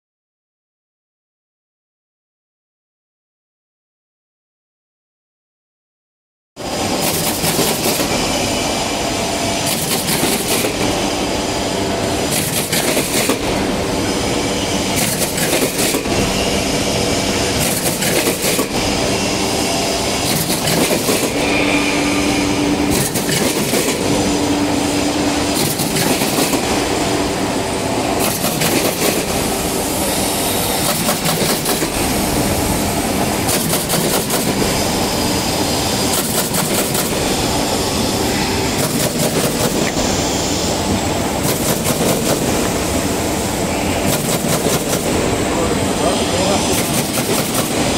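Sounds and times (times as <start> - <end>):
pneumatic hiss: 6.7 - 47.9
machine clattering: 7.0 - 8.2, 9.6 - 11.0, 12.3 - 13.6, 17.5 - 18.8, 20.2 - 21.5, 22.9 - 24.1, 25.5 - 26.8, 28.2 - 29.4, 30.8 - 32.2, 33.2 - 34.8, 36.0 - 37.3, 38.7 - 40.0, 41.4 - 42.7, 44.0 - 45.2, 46.4 - 47.9.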